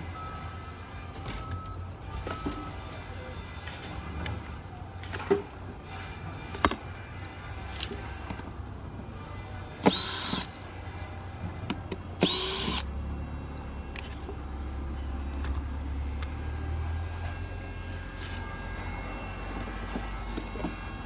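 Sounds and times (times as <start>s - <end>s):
cordless drill spinning: 9.8s - 10.5s, 12.2s - 12.9s.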